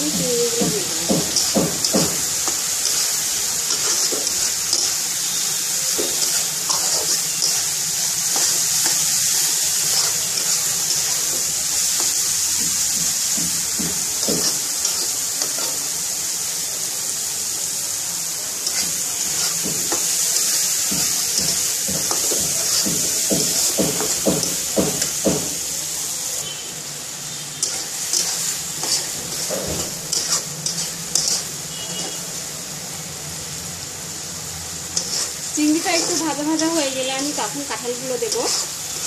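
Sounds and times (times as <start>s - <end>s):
spatula scraping wok: 0.0s - 16.6s, 17.7s - 39.0s
food sizzling in a wok: 0.0s - 39.0s.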